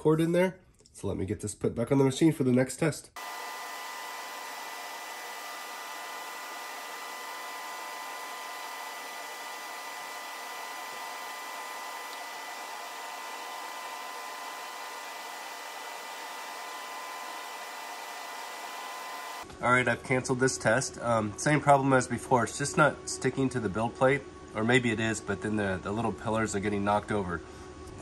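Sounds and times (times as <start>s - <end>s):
blower-like hiss: 3.2s - 19.4s.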